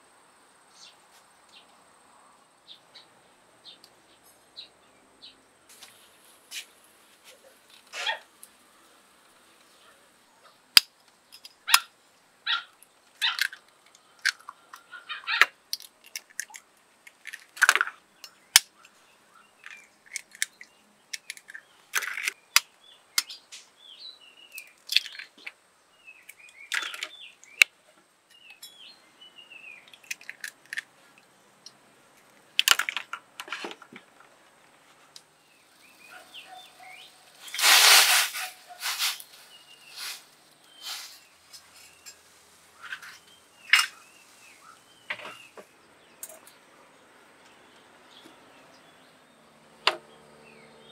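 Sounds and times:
faint birds chirping: 0:00.0 - 0:50.9
eggshells cracking: 0:15.7 - 0:18.6, 0:24.6 - 0:25.4, 0:29.9 - 0:30.9.

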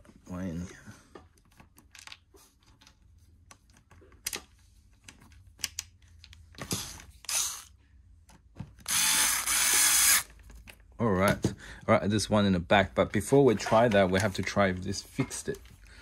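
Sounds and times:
electric screwdriver whirring: 0:07.2 - 0:07.7, 0:08.8 - 0:10.3.

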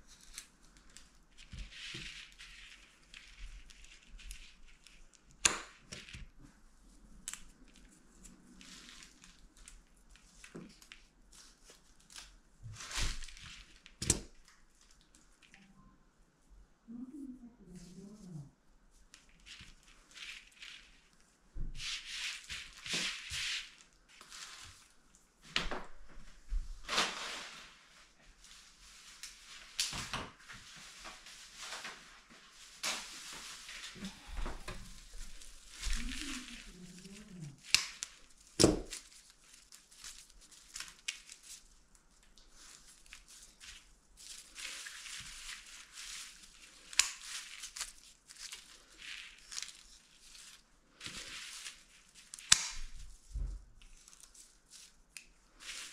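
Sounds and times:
craft materials rustling: 0:00.0 - 0:15.8, 0:17.8 - 0:55.9
sharp crackles: 0:32.8 - 0:41.7, 0:42.3 - 0:54.4.

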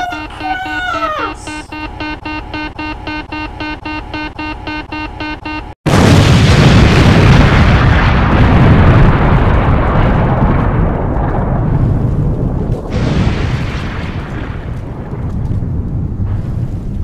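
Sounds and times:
rumbling explosion blast: 0:05.9 - 0:17.0.

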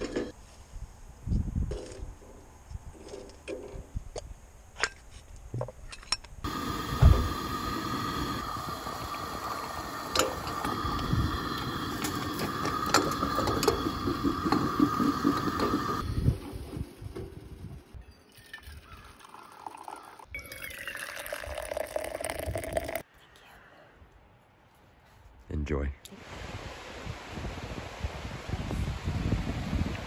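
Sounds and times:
camp stove burner hissing: 0:06.4 - 0:17.7.

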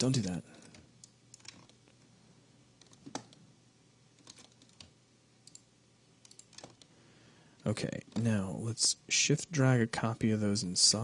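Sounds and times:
faint steady hum: 0:00.0 - 0:11.0
keyboard and mouse clicks: 0:00.6 - 0:02.0, 0:02.8 - 0:03.4, 0:04.2 - 0:06.9.

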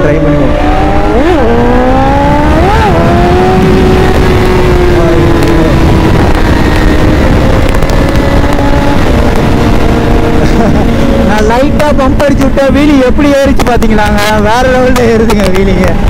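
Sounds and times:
motorcycle engine revving: 0:00.0 - 0:16.0
wind rumble: 0:00.0 - 0:16.0.

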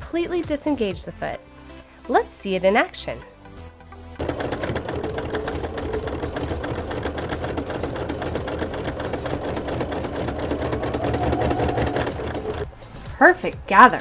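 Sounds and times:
sewing machine stitching: 0:04.2 - 0:12.8
sewing machine motor hum: 0:04.2 - 0:12.9.

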